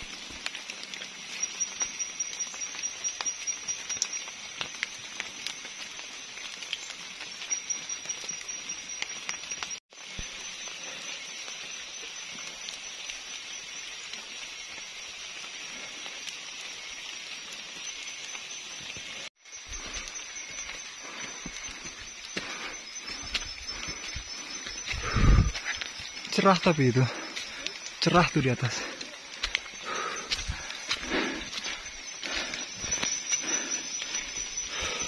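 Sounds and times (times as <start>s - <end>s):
high insect drone: 0.0s - 35.0s
small ticks and patters: 0.0s - 35.0s.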